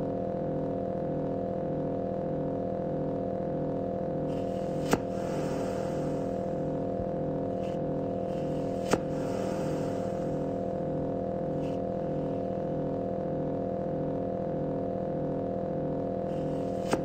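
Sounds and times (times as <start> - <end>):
electronic synth drone: 4.3 - 13.8
low pulsing layer: 4.3 - 17.0.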